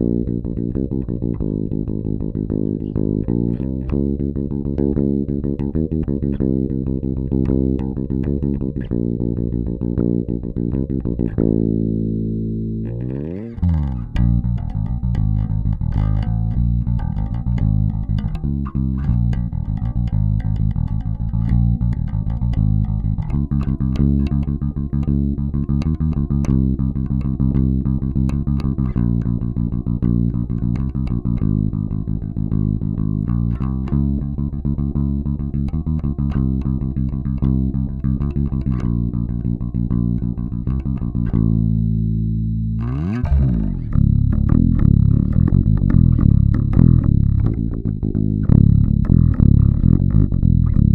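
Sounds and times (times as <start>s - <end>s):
electric bass playing: 0.0s - 50.9s.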